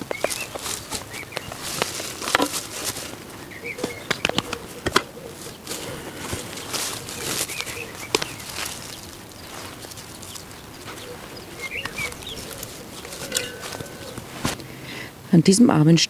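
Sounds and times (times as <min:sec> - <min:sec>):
scrapes and knocks: 0:00.0 - 0:03.2
garden fork digging soil: 0:00.0 - 0:14.6
bush branches rustling: 0:00.0 - 0:15.0
small birds chirping: 0:00.0 - 0:15.1.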